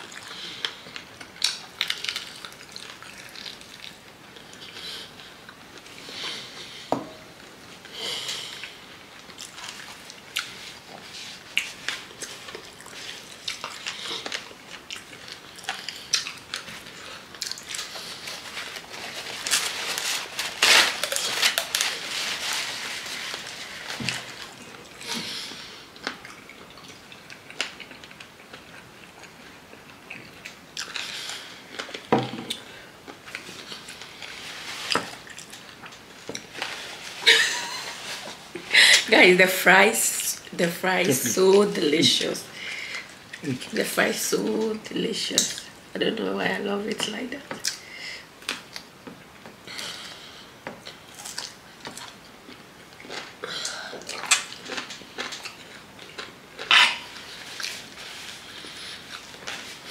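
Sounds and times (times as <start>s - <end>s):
chewing and crunching food: 0.0s - 38.6s, 47.5s - 59.9s.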